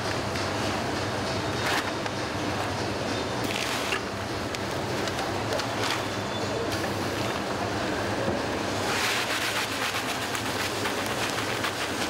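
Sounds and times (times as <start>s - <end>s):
machinery hum and rushing hiss: 0.0s - 12.0s.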